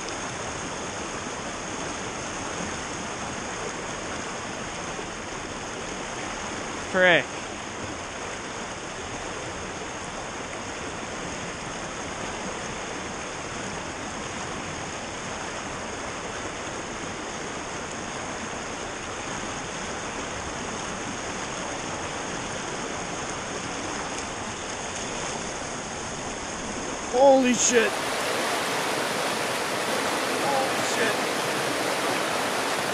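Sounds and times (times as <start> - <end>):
creek water rushing over rocks: 0.0 - 32.9.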